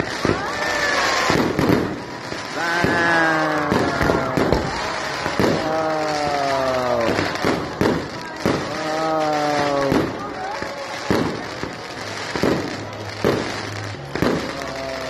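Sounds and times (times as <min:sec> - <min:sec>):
fireworks bangs and crackling: 0:00.0 - 0:15.0.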